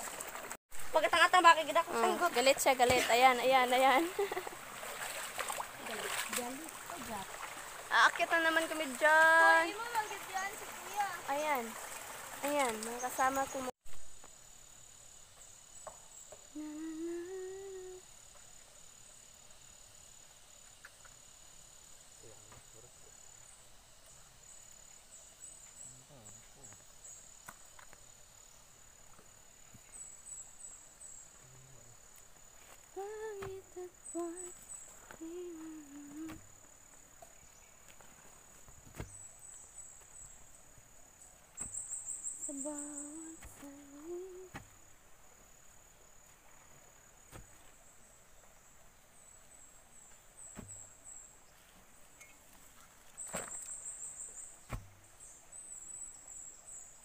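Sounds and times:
insect trill and chirping: 0.8 - 57.0
high-pitched insect drone: 13.1 - 28.6, 41.7 - 44.6.

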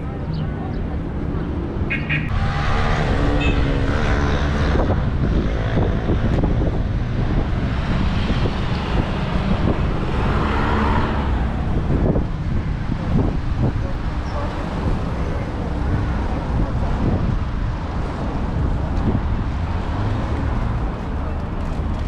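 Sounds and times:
city street traffic: 0.0 - 22.0
wind buffeting microphone: 2.2 - 22.0.

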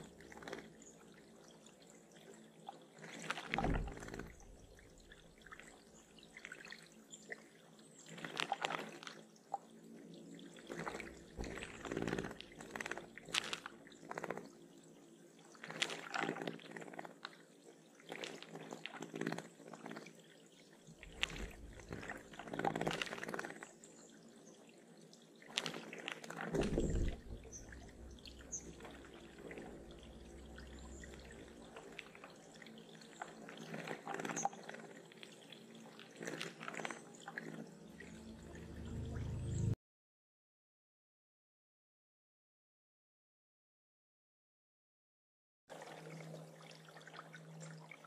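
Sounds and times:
water splashing and dripping: 0.0 - 1.4, 2.1 - 7.5, 8.1 - 9.7, 10.4 - 14.6, 15.5 - 17.4, 18.0 - 23.7, 25.4 - 39.8.

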